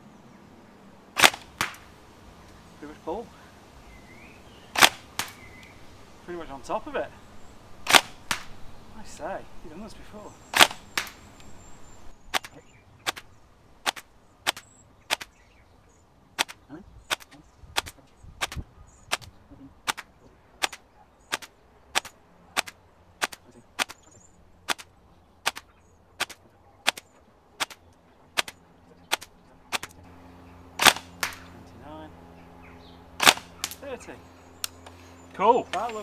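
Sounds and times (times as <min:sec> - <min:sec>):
airsoft rifle shots: 0:01.1 - 0:02.0, 0:04.7 - 0:05.5, 0:07.8 - 0:08.6, 0:10.5 - 0:11.3, 0:12.3 - 0:15.4, 0:16.4 - 0:30.0, 0:30.7 - 0:31.7, 0:33.2 - 0:33.8.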